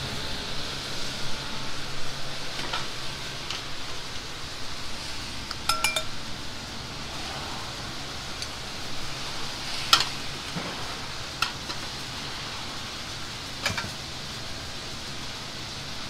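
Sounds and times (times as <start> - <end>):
steady kitchen hiss: 0.0 - 16.0
ceramic bowls clinking on steel: 5.7 - 6.1.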